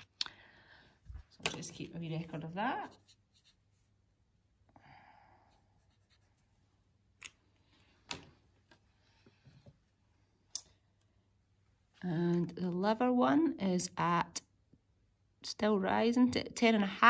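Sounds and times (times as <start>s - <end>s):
marker pen scratching on paper: 2.2s - 3.9s.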